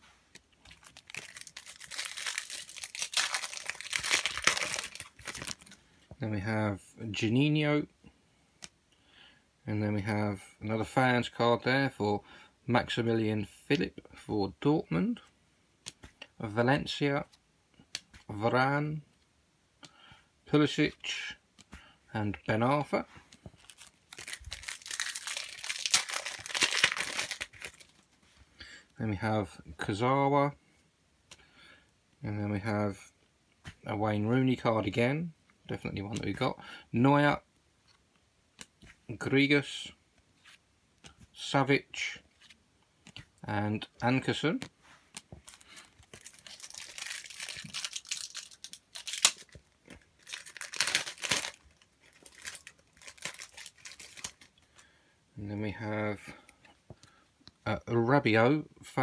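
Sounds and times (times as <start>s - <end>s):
wrapper crinkling and tearing: 0.6s - 5.8s, 23.5s - 28.1s, 45.4s - 54.6s.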